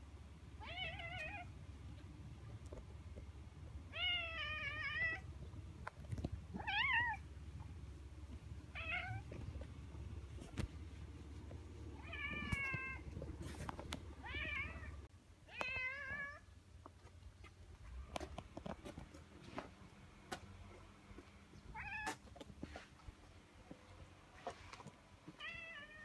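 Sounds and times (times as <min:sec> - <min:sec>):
cat meowing: 0:00.6 - 0:01.5, 0:06.6 - 0:07.2, 0:08.7 - 0:09.3.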